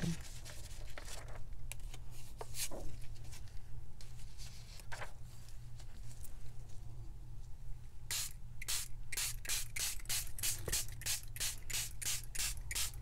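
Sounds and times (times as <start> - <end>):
paper rustling: 0.0 - 6.8.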